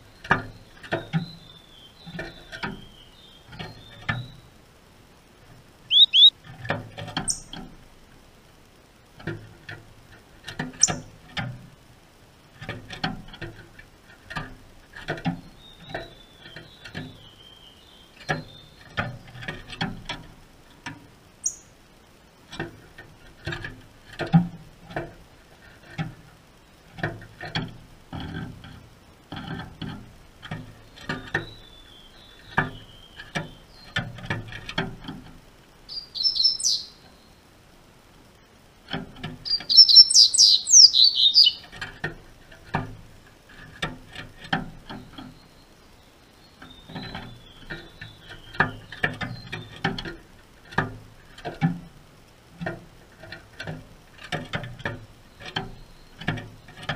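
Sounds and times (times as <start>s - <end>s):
faint high bird chirps: 5.9s - 6.4s, 7.2s - 7.5s, 21.4s - 21.7s, 30.8s - 34.0s, 35.9s - 37.4s, 39.4s - 41.7s.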